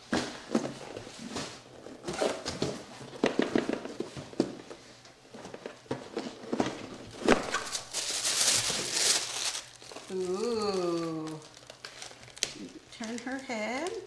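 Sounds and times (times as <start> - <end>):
tissue paper rustling: 7.2 - 13.4.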